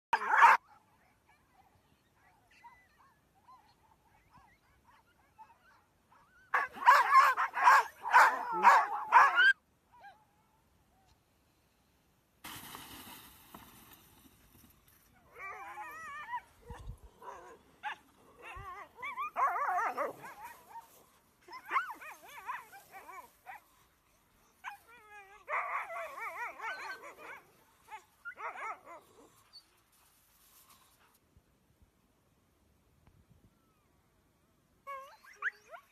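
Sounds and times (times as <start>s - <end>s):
dogs whining and howling: 15.2s - 23.2s, 24.6s - 29.6s, 34.9s - 35.9s.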